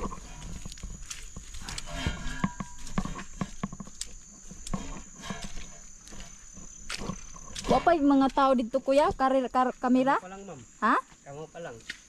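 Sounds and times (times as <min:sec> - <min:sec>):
footsteps on muddy trail: 0:00.0 - 0:09.4
high-pitched insect drone: 0:00.0 - 0:11.9.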